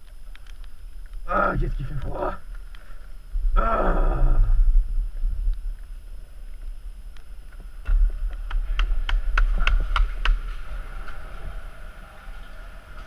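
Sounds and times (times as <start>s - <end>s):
chairlift rumble: 8.1s - 13.0s.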